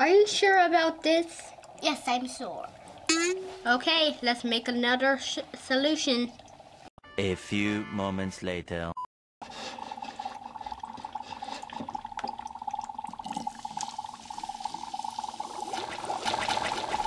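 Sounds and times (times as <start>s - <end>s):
liquid splashing pour: 9.8s - 17.0s.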